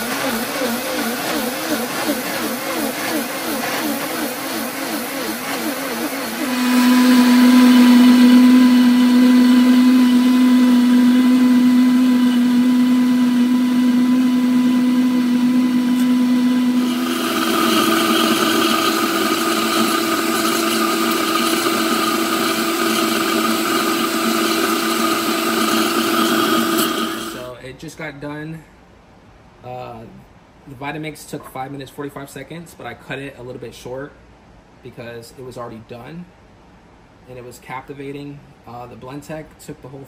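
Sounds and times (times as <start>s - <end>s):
blender motor whining: 0.0s - 27.5s.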